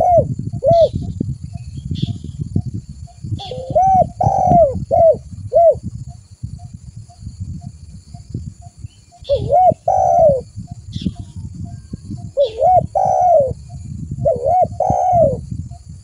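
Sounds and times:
dove cooing: 0:00.0 - 0:01.1, 0:03.3 - 0:05.9, 0:09.2 - 0:15.5.

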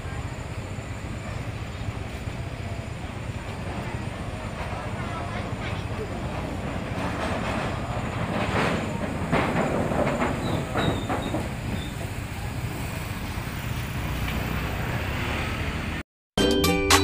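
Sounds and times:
train rumble on rail bridge: 0:00.0 - 0:16.0
clattering knocks: 0:06.4 - 0:12.1
cheerful background music: 0:16.4 - 0:17.0.

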